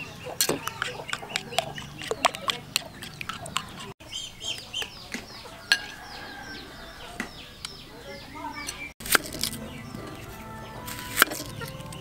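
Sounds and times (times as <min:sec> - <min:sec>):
chickens clucking: 0:00.0 - 0:12.0
spoon scraping ceramic bowl: 0:00.4 - 0:04.0, 0:08.7 - 0:12.0.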